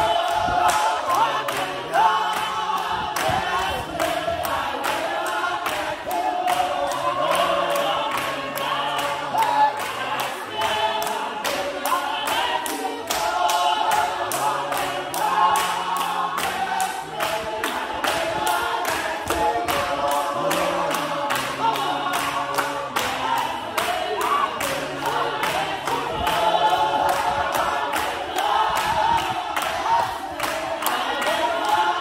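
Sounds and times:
congregation singing a hymn: 0:00.0 - 0:32.0
hand claps: 0:00.0 - 0:32.0.

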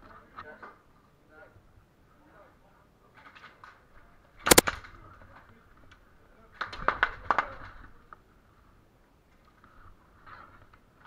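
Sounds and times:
airsoft guns firing sharp cracks: 0:04.4 - 0:04.9.

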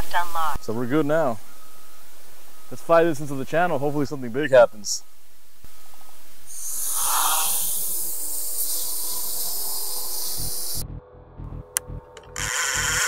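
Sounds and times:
drone propellers spinning: 0:06.5 - 0:13.0.

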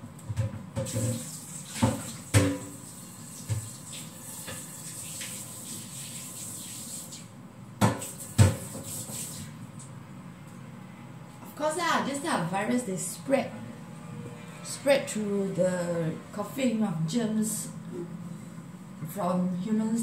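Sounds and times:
tap running into sink: 0:00.3 - 0:06.1, 0:07.8 - 0:09.5
pans clattering in basin: 0:00.4 - 0:02.8.

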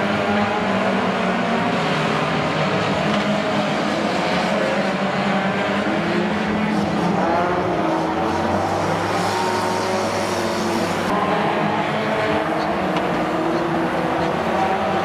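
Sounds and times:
race car engines revving: 0:00.0 - 0:15.0.

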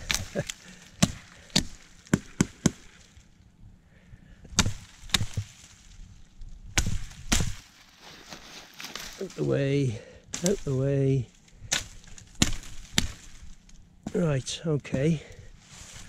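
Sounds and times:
machete chopping wood: 0:00.0 - 0:03.0, 0:04.5 - 0:05.7, 0:06.8 - 0:07.7, 0:10.3 - 0:10.8, 0:11.7 - 0:13.4.

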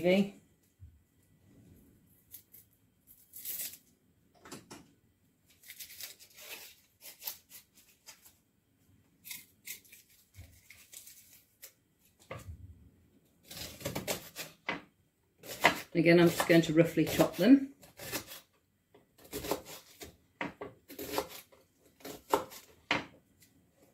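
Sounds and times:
shallot skins crackling and tearing: 0:02.3 - 0:03.9, 0:05.5 - 0:08.4, 0:09.2 - 0:12.1.

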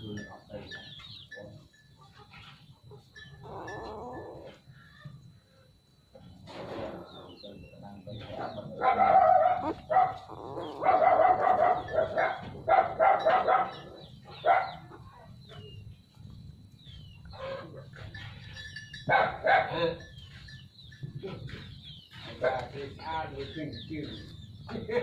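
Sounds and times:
dog barking: 0:08.5 - 0:15.0, 0:19.1 - 0:19.9.

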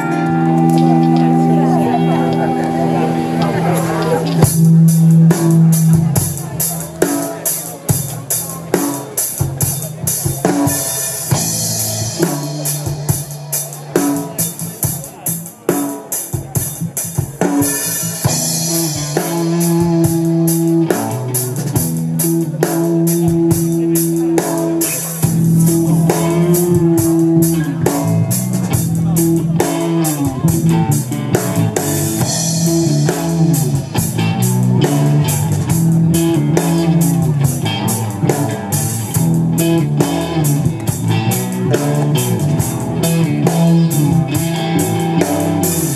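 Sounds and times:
bending held melody line: 0:00.0 - 0:08.7, 0:18.2 - 0:45.9
bass guitar: 0:00.0 - 0:45.9
drum kit hits: 0:00.0 - 0:45.9
electric guitar: 0:00.0 - 0:45.9.

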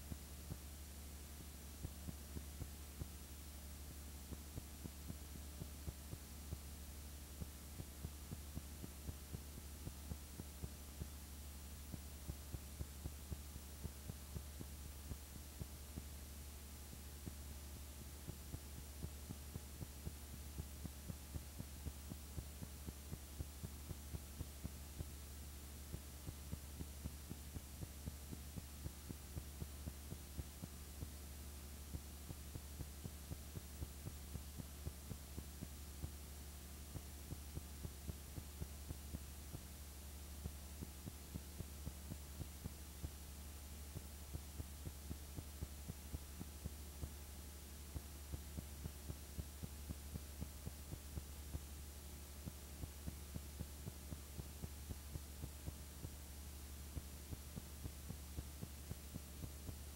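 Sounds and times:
projector low hum: 0:00.0 - 0:59.9.

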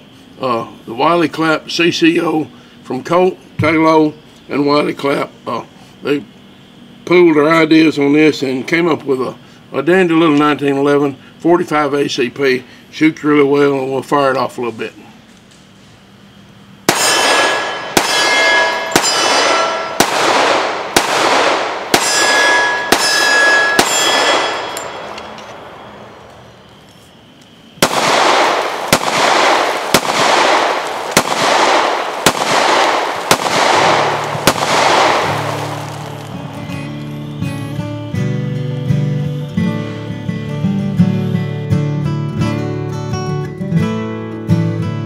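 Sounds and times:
pistol shots with ringing tail: 0:16.8 - 0:26.6, 0:27.8 - 0:37.4.

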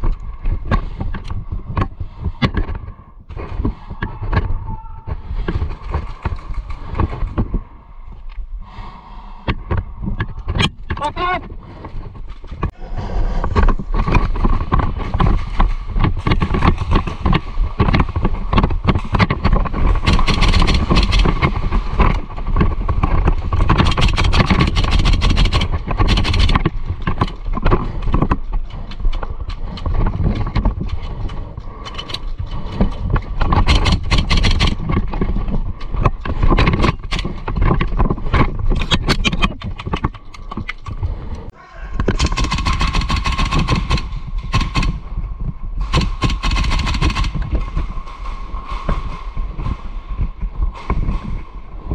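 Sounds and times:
heavy breathing through gas mask: 0:08.5 - 0:10.5, 0:41.0 - 0:42.7
quick clicks and knocks: 0:13.5 - 0:45.2.

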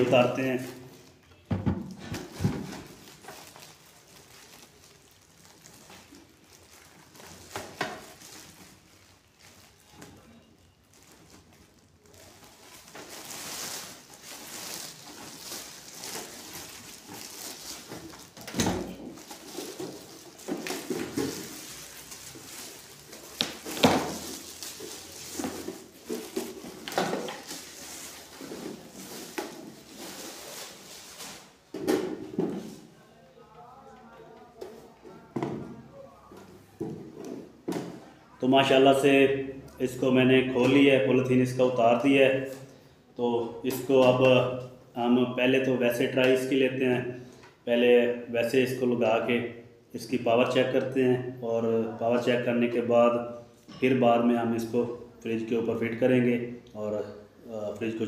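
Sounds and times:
plastic crackles: 0:02.1 - 0:32.9
rustling plastic wrap: 0:02.1 - 0:32.9.

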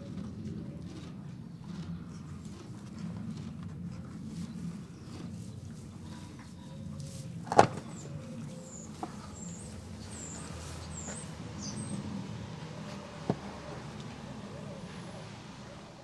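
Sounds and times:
small birds chirping: 0:04.0 - 0:12.3.

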